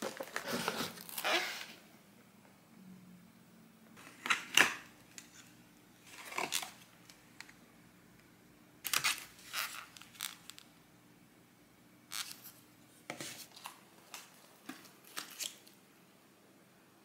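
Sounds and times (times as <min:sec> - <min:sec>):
paper and cardboard rustling: 0:00.0 - 0:01.2.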